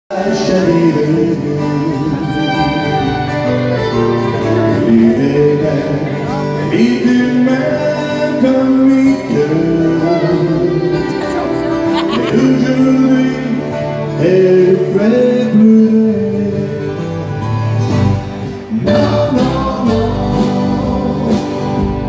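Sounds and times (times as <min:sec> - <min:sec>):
acoustic guitars strumming: 0:00.1 - 0:22.0
fiddle playing sliding melody: 0:01.9 - 0:06.6, 0:09.5 - 0:14.2.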